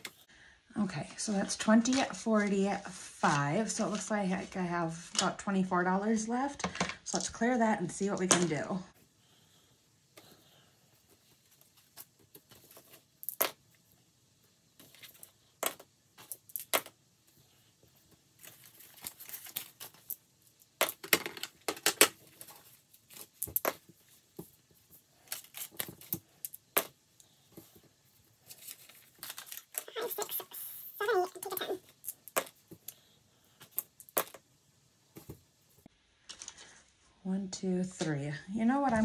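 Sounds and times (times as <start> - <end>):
paper rustling: 18.4 - 20.2.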